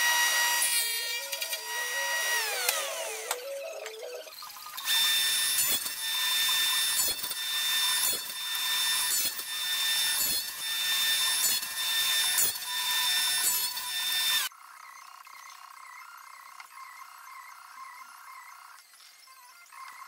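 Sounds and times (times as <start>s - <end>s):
table saw cutting wood: 0.0s - 14.5s.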